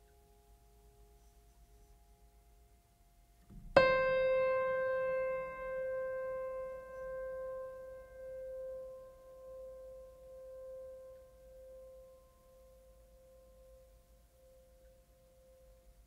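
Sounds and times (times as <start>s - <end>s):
piano note ringing: 3.5s - 12.9s.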